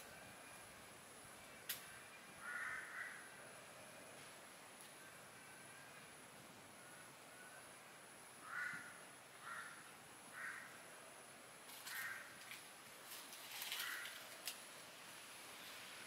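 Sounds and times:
faint high-pitched whine: 0.0s - 16.0s
crow cawing: 2.4s - 3.4s, 8.4s - 10.8s, 11.8s - 12.4s, 13.8s - 14.3s
sharp crackles: 11.7s - 14.8s.

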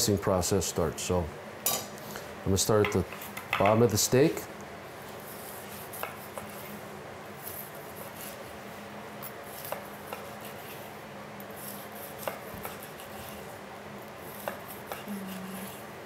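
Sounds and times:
knife slicing meat: 5.2s - 6.8s, 9.4s - 13.5s, 14.2s - 15.9s.

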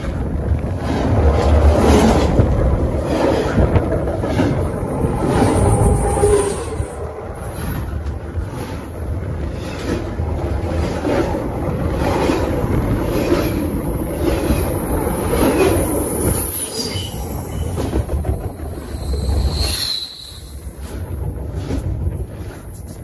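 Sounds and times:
train wheels rumbling on rails: 0.0s - 23.0s
high wheel squeals: 5.2s - 7.8s, 16.1s - 17.9s, 18.8s - 20.7s.

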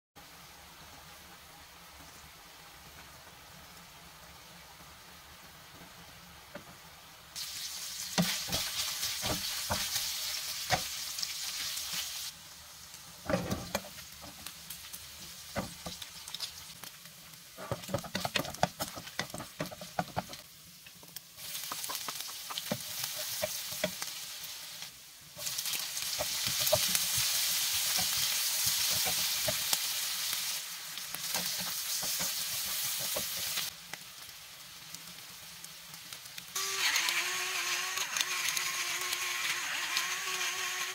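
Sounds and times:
meat sizzling in hot oil: 0.2s - 40.9s
spatula scraping a pan: 21.5s - 24.0s, 26.2s - 29.7s.

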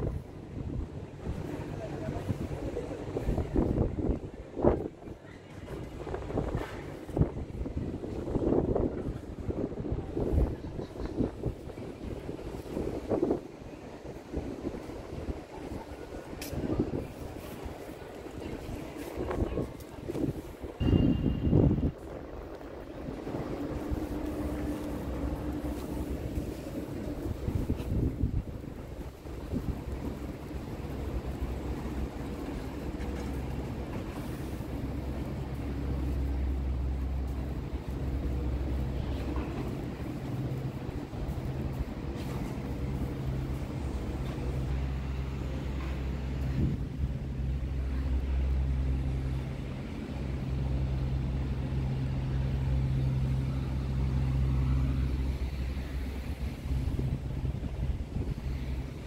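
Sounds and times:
city street ambience: 0.0s - 59.0s
low mechanical urban rumble: 0.0s - 59.0s
low motor hum: 16.8s - 59.0s.

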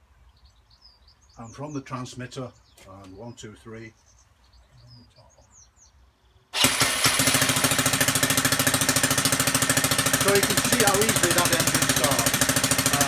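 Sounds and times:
electric starter turning engine: 6.5s - 13.0s
model engine running: 6.6s - 13.0s.

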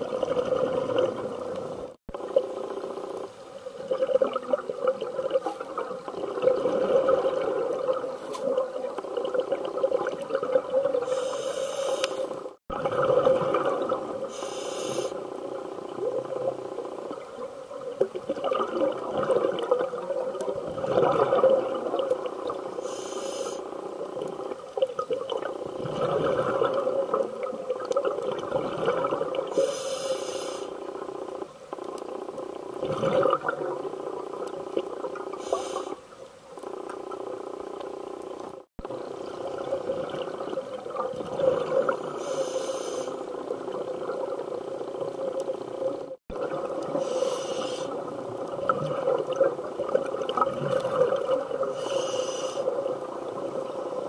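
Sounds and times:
diver's regulator breathing underwater: 11.0s - 12.4s, 14.2s - 15.2s, 22.8s - 23.7s, 29.5s - 30.8s, 35.3s - 36.0s, 41.8s - 43.3s, 46.9s - 48.0s, 51.6s - 52.7s
short hiss: 11.1s - 12.3s, 14.3s - 15.1s, 29.6s - 30.7s, 42.2s - 43.2s, 47.0s - 48.0s, 51.8s - 52.6s.

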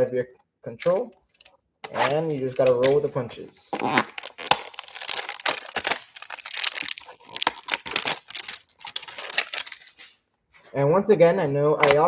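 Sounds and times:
plastic wrap crinkling and tearing: 3.7s - 10.2s.

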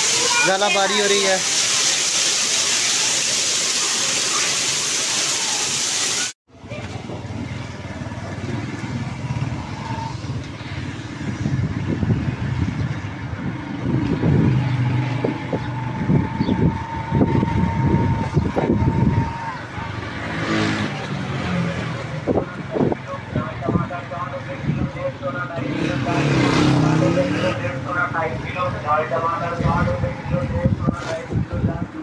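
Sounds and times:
heavy rain on pavement: 0.0s - 6.4s
motorcycle engine rumbling: 6.5s - 31.9s.

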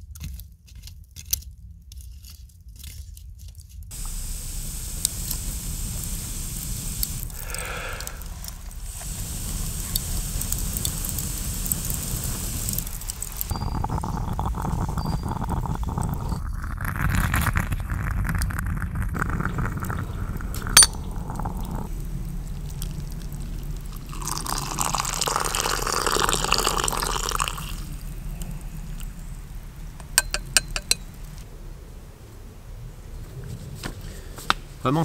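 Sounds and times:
steady hiss: 3.9s - 16.4s, 19.2s - 33.2s
coffee pouring into cup: 3.9s - 28.2s.

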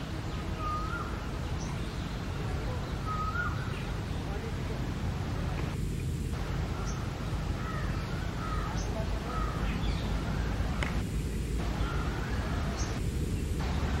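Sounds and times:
background rumble and hiss: 0.0s - 14.0s
birds calling: 0.0s - 14.0s.

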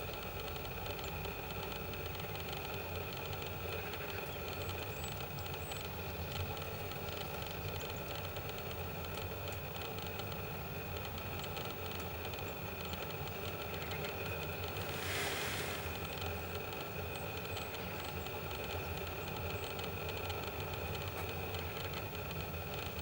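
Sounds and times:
low mechanical hum: 0.0s - 23.0s
burst of hiss: 14.7s - 16.5s.

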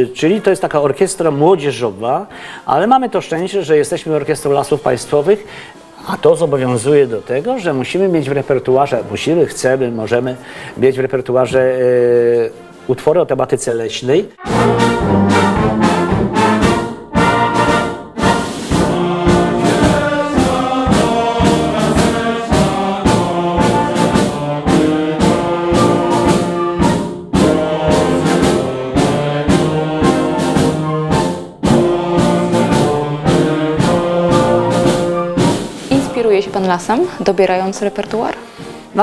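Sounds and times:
wind orchestra playing chords: 14.4s - 36.3s.

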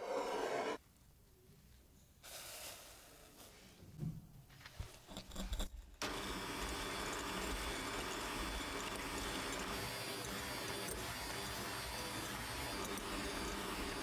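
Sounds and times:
electric hand mixer whipping: 6.0s - 14.0s.

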